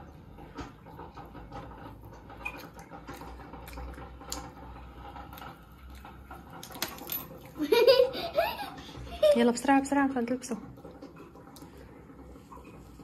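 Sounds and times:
clicks and scratches of eating: 0.2s - 7.6s.

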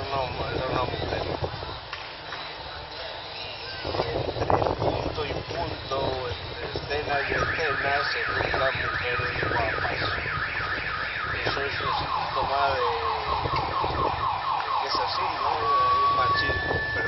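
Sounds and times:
car alarm sweeps: 7.0s - 17.0s.

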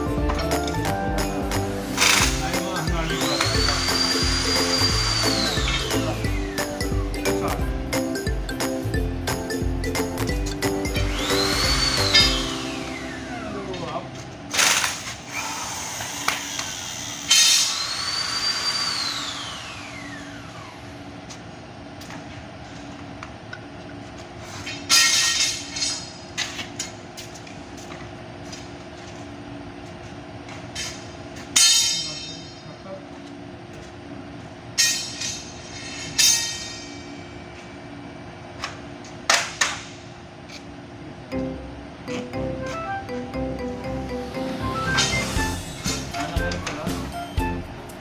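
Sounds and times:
steady hum: 0.0s - 17.4s, 19.0s - 48.0s
power tool whine: 1.8s - 6.7s, 10.8s - 21.1s.

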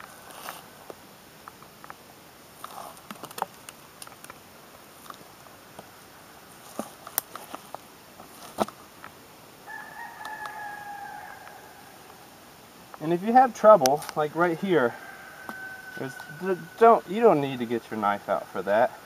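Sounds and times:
hide tearing with crackles: 2.6s - 4.4s, 6.6s - 8.8s
rooster crowing: 9.6s - 12.2s, 14.5s - 17.4s.

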